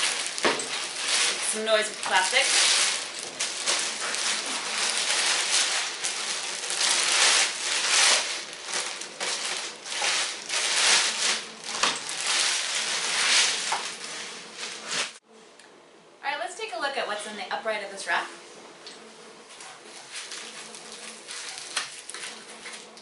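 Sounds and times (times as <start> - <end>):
plastic bag crinkling: 0.0 - 15.2, 20.0 - 23.0.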